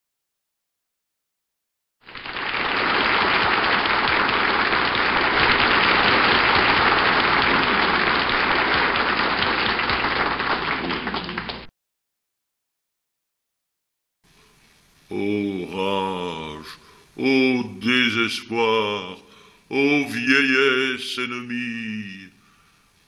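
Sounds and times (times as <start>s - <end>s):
audience applause: 2.0s - 11.7s.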